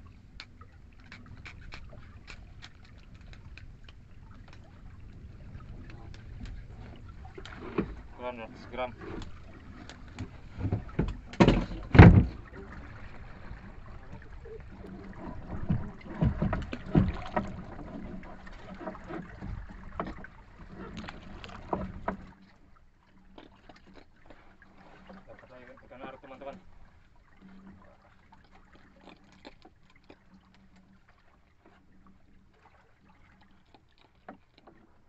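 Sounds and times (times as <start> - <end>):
water: 0.0 - 35.0.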